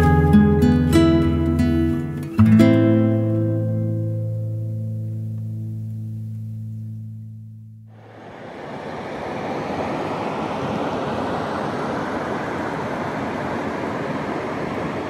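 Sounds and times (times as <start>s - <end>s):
river water rushing: 7.9s - 15.0s.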